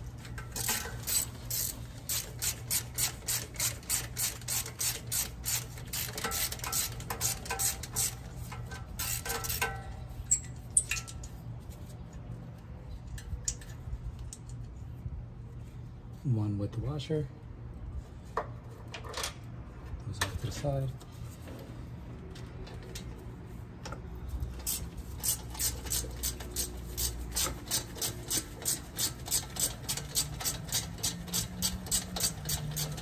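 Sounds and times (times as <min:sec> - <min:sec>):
hand ratchet clicking: 0:00.4 - 0:11.2, 0:24.6 - 0:33.0.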